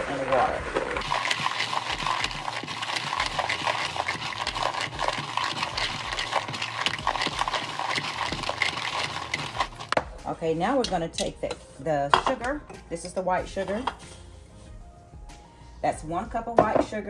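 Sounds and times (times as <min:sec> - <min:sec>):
nuts clattering in plastic bowl: 0:00.7 - 0:10.0.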